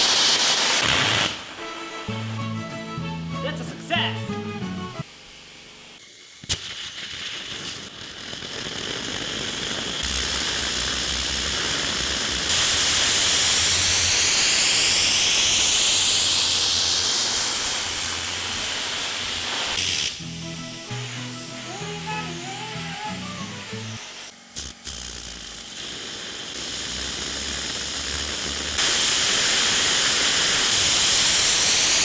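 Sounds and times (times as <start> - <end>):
rocket engine hissing: 0.0 - 2.4, 5.0 - 32.0
music: 1.6 - 5.1, 20.2 - 24.1.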